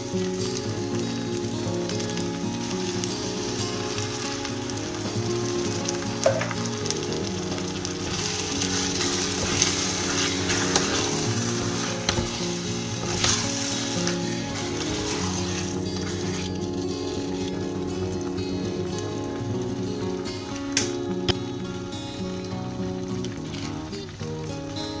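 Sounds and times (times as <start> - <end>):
soft background music: 0.0 - 25.0
tomatoes sizzling in a pan: 0.0 - 25.0
wooden spoon stirring and knocking: 7.6 - 17.7.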